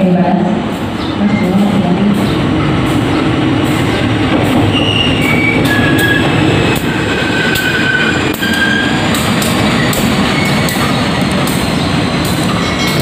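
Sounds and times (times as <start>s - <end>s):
wheels squealing on rails: 4.5s - 13.0s.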